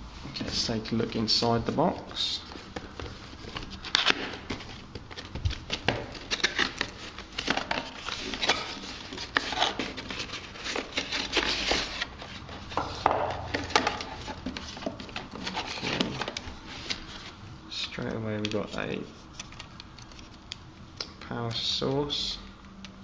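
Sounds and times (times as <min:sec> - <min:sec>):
cardboard box being opened: 0:02.8 - 0:17.4.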